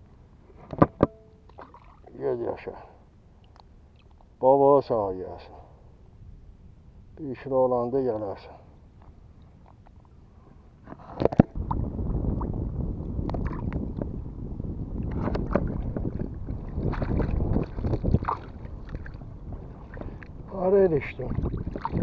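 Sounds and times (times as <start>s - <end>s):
water sloshing and splashing: 0.8s - 2.2s, 13.3s - 14.0s, 15.0s - 22.0s
wind buffeting microphone: 11.2s - 22.0s.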